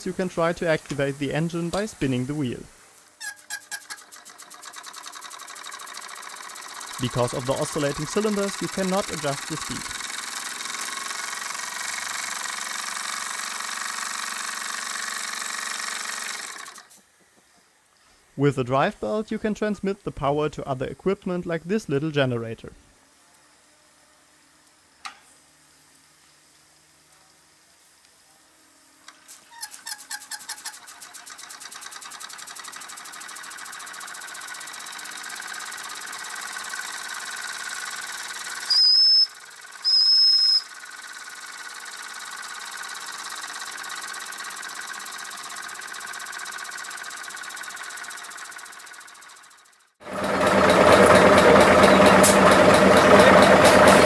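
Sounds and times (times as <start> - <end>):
hissing exhaust steam: 0.0 - 3.1, 50.3 - 54.0
toy steam engine running: 0.0 - 17.0, 28.7 - 54.0
mechanical clatter: 3.2 - 17.2, 29.1 - 38.7, 39.3 - 54.0.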